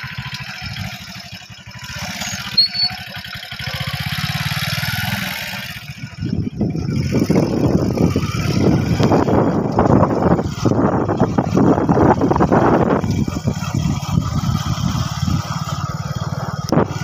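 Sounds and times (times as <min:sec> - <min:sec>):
vehicle engine putter: 0:00.0 - 0:17.0
high chirp: 0:02.2 - 0:03.0
wind buffeting microphone: 0:06.0 - 0:17.0.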